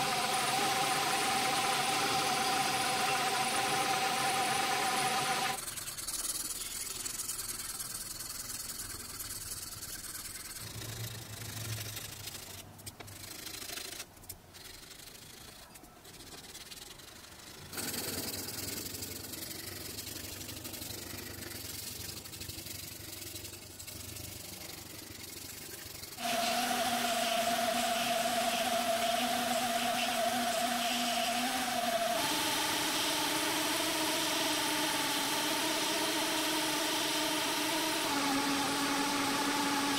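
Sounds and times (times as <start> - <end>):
belt grinder whining: 0.0 - 5.6, 26.1 - 39.9
sandpaper scratching: 0.0 - 39.9.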